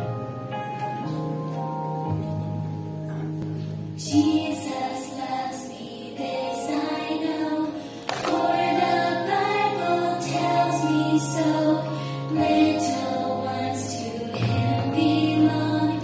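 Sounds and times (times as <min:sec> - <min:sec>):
instrumental accompaniment: 0:00.0 - 0:04.6
group of voices singing: 0:04.0 - 0:16.0.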